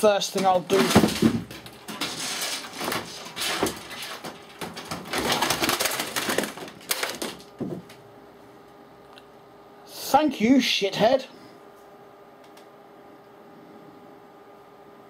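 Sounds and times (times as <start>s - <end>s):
objects clattering and crashing: 0.3s - 7.9s.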